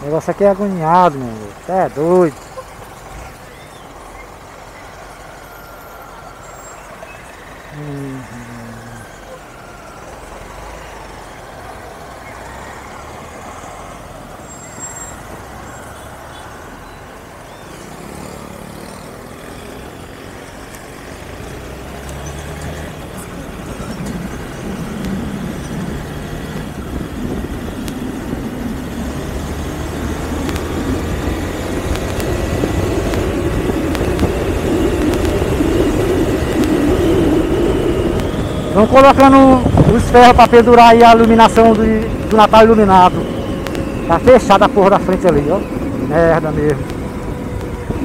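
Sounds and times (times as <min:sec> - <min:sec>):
motorcycle engine: 0:00.0 - 0:48.0
wind rush on microphone: 0:23.0 - 0:48.0.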